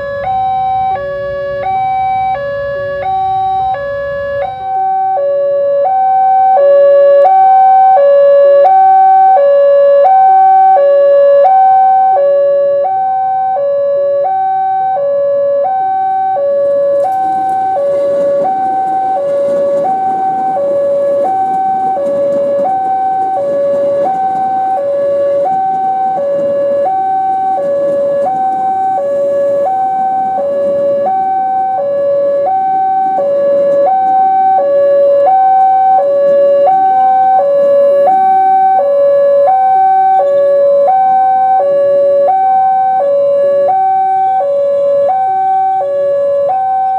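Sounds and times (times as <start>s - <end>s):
lower alarm note: 0.0s - 46.9s
two-tone crossing alarm: 0.0s - 46.9s
train wheels rumbling on rails: 16.4s - 42.2s.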